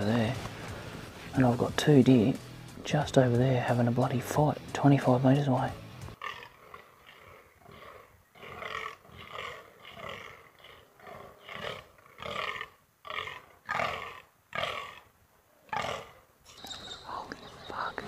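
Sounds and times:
deer croaking: 0.0s - 18.0s.

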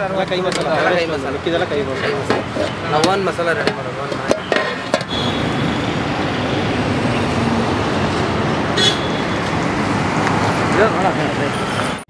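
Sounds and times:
road traffic rushing: 0.0s - 12.0s.

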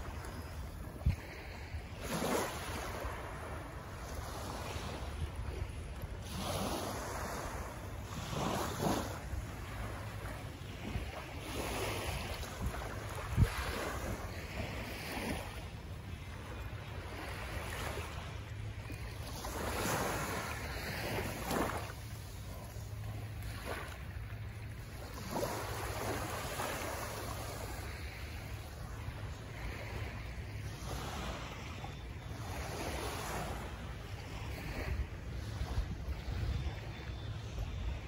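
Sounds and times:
wind buffeting microphone: 0.0s - 15.6s, 34.3s - 38.0s
small waves lapping on beach: 0.0s - 38.0s.

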